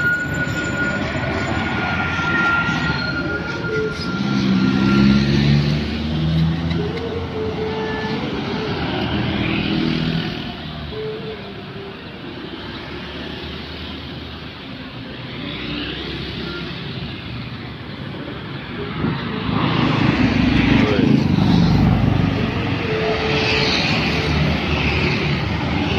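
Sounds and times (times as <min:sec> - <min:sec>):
loud engine approaching fast: 0:00.0 - 0:10.6, 0:18.6 - 0:25.9
vehicles driving past: 0:00.0 - 0:25.9.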